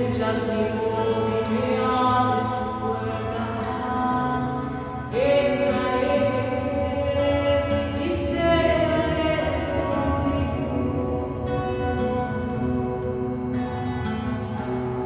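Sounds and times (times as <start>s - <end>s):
slow hymn singing: 0.0s - 15.0s.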